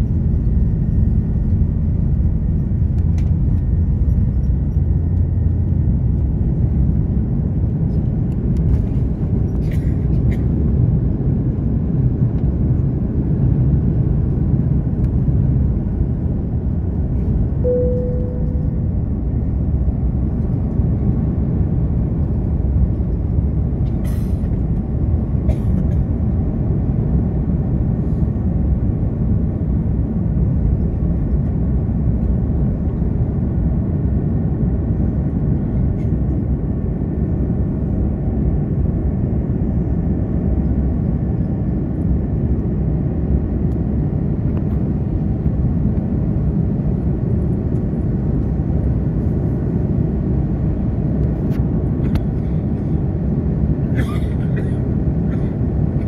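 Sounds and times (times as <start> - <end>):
jet engines and airflow rumble: 0.0 - 56.0
short steady tone: 17.6 - 19.0.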